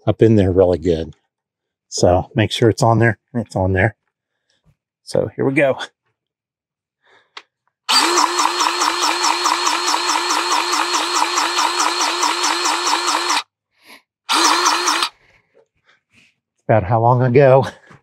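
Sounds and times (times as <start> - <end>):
grease gun pump pulsing: 7.9 - 13.4, 14.3 - 15.1.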